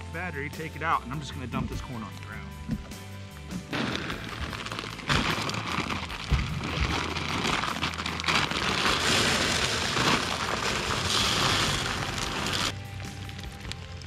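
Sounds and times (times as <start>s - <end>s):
faint music: 0.0s - 14.0s
corn kernels pouring: 3.7s - 14.0s.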